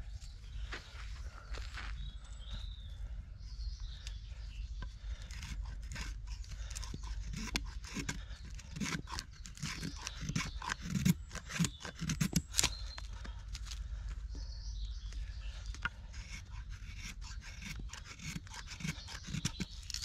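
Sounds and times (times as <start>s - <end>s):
knife scraping bark from stick: 4.8s - 13.8s, 15.7s - 20.0s.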